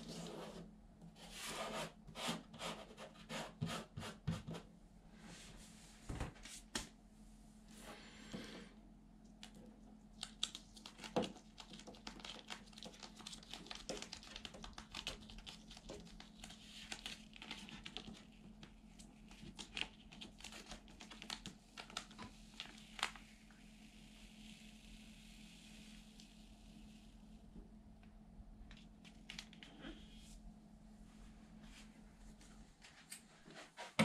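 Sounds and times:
faint steady hum: 0:00.0 - 0:34.0
wall sticker crinkling and crackling: 0:09.3 - 0:23.3, 0:28.6 - 0:30.0.

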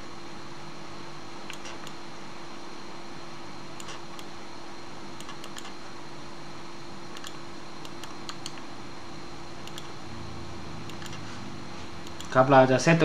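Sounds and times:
background hiss and hum: 0:00.0 - 0:13.0
computer mouse clicking: 0:01.5 - 0:02.0, 0:03.8 - 0:04.3, 0:05.2 - 0:05.8, 0:07.1 - 0:08.7, 0:09.6 - 0:10.0, 0:10.8 - 0:11.3, 0:12.0 - 0:12.4.

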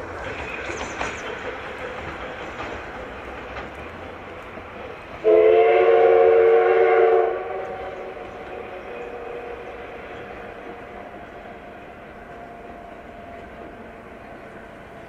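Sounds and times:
passing train running: 0:00.0 - 0:15.0
locomotive whistle: 0:05.2 - 0:14.1.

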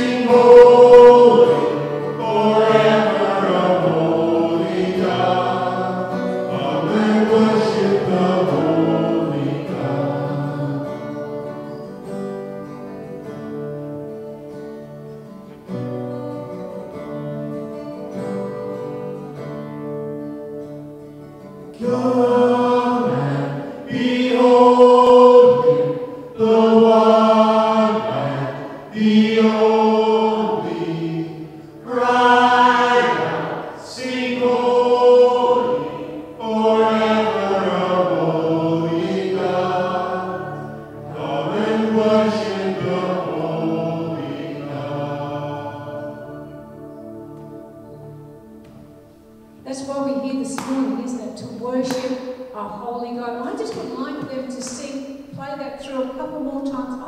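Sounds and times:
men singing: 0:00.0 - 0:11.1, 0:21.8 - 0:46.4
acoustic guitars playing chords: 0:00.0 - 0:57.0.

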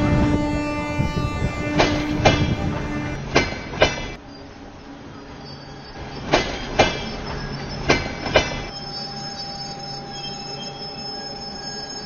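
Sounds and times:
low train rumble: 0:00.0 - 0:12.0
train wheels clacking over rail joints: 0:01.7 - 0:02.7, 0:03.3 - 0:04.2, 0:06.0 - 0:08.7.

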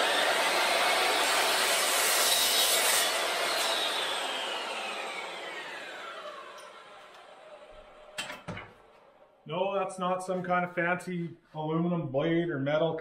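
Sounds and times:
chop saw cutting metal: 0:00.0 - 0:08.5.

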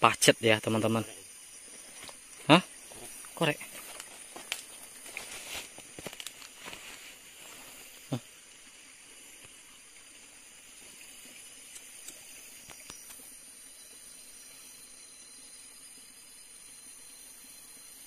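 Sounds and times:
high-pitched insect drone: 0:00.0 - 0:18.0
light clicks and rustles: 0:03.8 - 0:07.0.

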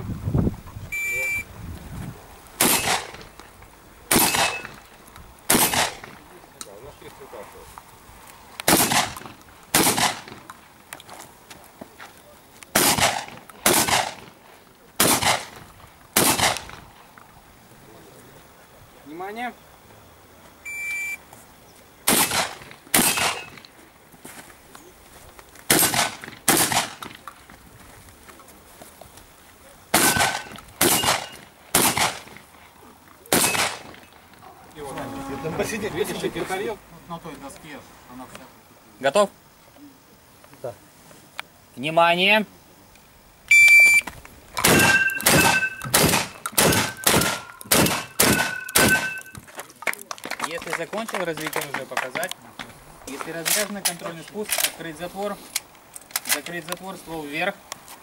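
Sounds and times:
shot timer beep: 0:01.0 - 0:01.4, 0:20.7 - 0:21.2, 0:43.5 - 0:44.0, 0:44.8 - 0:45.9, 0:48.3 - 0:49.4
shotgun shots: 0:02.6 - 0:03.3, 0:04.1 - 0:04.8, 0:05.5 - 0:06.2, 0:08.7 - 0:10.4, 0:12.7 - 0:14.3, 0:15.0 - 0:15.6, 0:16.2 - 0:16.8, 0:22.1 - 0:23.6, 0:25.7 - 0:27.2, 0:29.9 - 0:32.4, 0:33.3 - 0:34.0, 0:44.6 - 0:49.2
short ringing tone: 0:44.8 - 0:45.9, 0:48.4 - 0:49.4.

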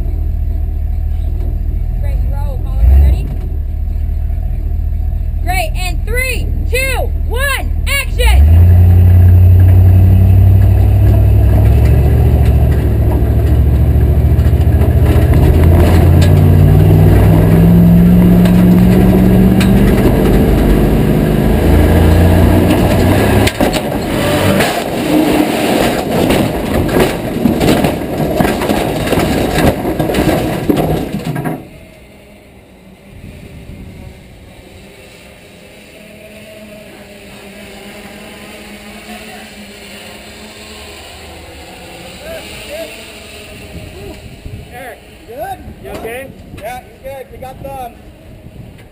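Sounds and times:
truck engine at full throttle: 0:00.0 - 0:48.9
loud bangs crashes and rattles: 0:22.4 - 0:31.8.

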